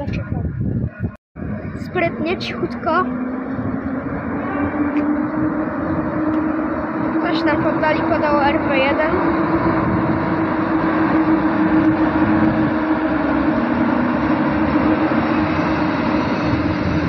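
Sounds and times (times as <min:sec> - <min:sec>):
locomotive hum: 0:00.0 - 0:17.0
wheels on rails: 0:01.4 - 0:17.0.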